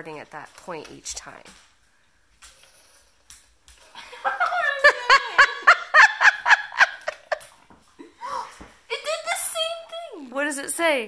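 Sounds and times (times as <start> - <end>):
person laughing: 4.0 - 8.4.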